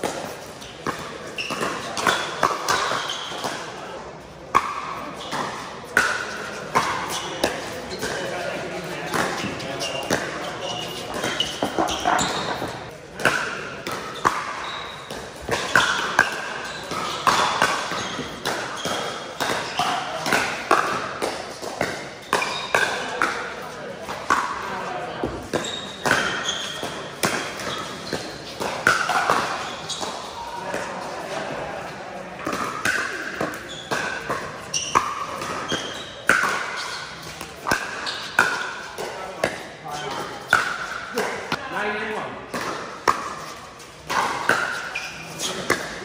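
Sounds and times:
paddles striking pickleball: 0:04.5 - 0:08.4, 0:09.0 - 0:23.5, 0:24.1 - 0:24.6, 0:25.2 - 0:31.4, 0:32.4 - 0:41.6, 0:42.5 - 0:46.0.

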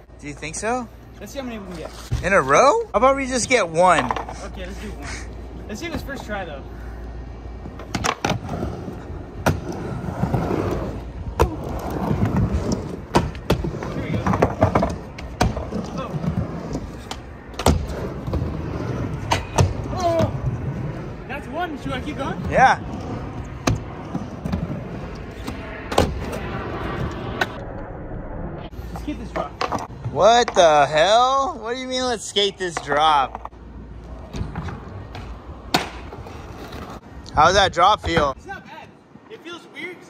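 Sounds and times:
skateboard wheels rolling: 0:00.0 - 0:39.8
skateboard clacking: 0:32.6 - 0:33.6.

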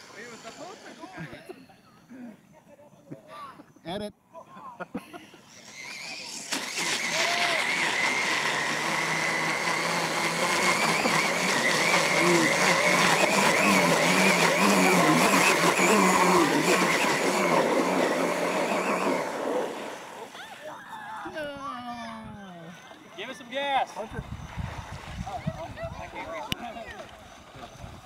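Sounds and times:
toy truck motor whining: 0:00.0 - 0:01.4, 0:05.3 - 0:20.5
tires churning water spray: 0:05.6 - 0:20.4.

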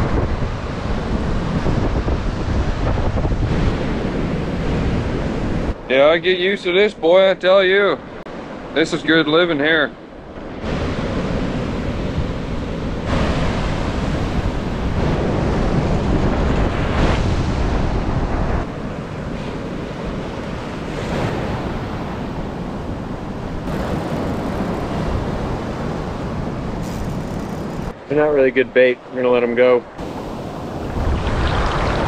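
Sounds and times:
wind on microphone: 0:00.0 - 0:05.8, 0:10.4 - 0:28.0, 0:29.9 - 0:32.0
surf washing on beach: 0:00.0 - 0:32.0.

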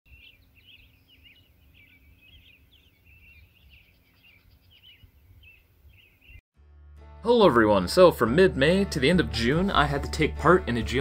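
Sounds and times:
songbird warbling: 0:00.1 - 0:06.4.

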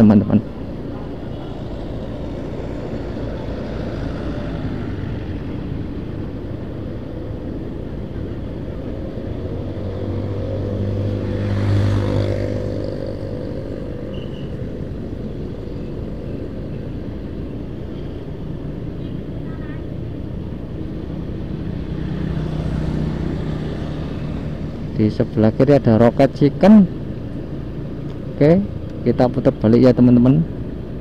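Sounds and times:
vehicle passing: 0:00.0 - 0:31.0
motorcycle engine: 0:08.2 - 0:28.9.

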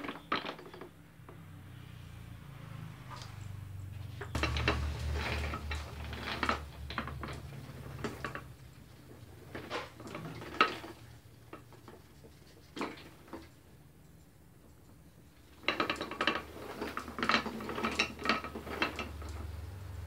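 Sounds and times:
low machine hum: 0:03.7 - 0:08.0
metallic clanks and clinks: 0:04.4 - 0:08.5.

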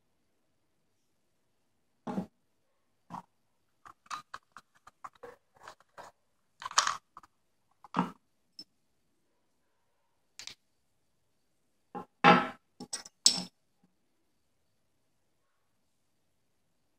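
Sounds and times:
plastic and metal parts clicking: 0:03.9 - 0:08.0.

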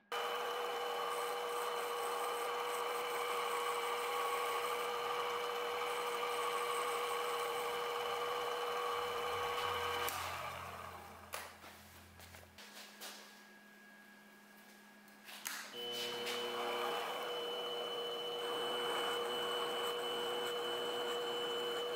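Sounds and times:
lathe motor whining: 0:00.0 - 0:11.3, 0:15.8 - 0:21.9
file rubbing spinning metal: 0:00.1 - 0:10.1, 0:16.1 - 0:21.9.

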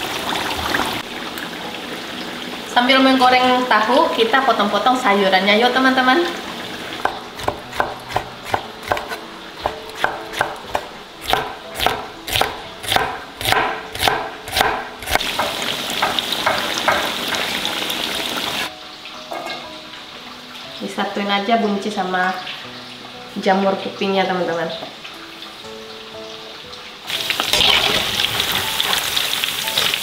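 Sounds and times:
tofu deep-frying in hot oil: 0:00.0 - 0:21.2, 0:22.3 - 0:30.0
knife chopping on wooden board: 0:07.0 - 0:15.6.

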